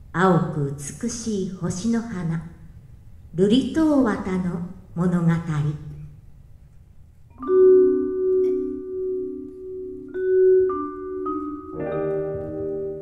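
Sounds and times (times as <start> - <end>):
vibraphone notes ringing: 7.4 - 13.0.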